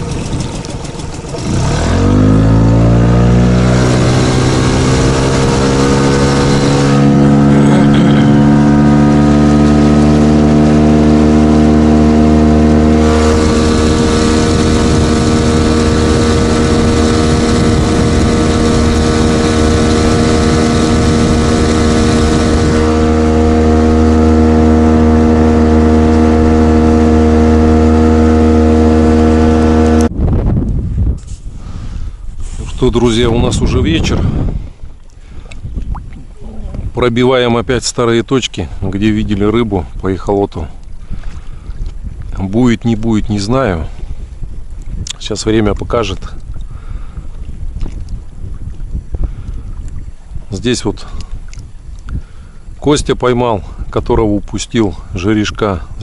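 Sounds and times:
outboard motor throttling up: 0.0 - 37.1.

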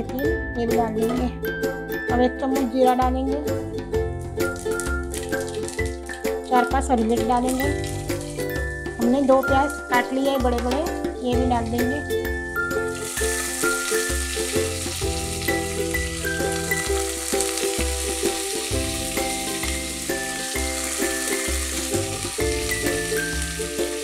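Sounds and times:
background music: 0.0 - 24.0
onions sizzling in oil: 4.4 - 9.0, 12.6 - 24.0.

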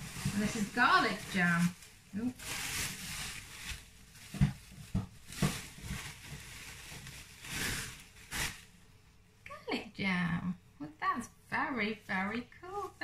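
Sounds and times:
plastic wrapping crinkling: 0.0 - 8.8.

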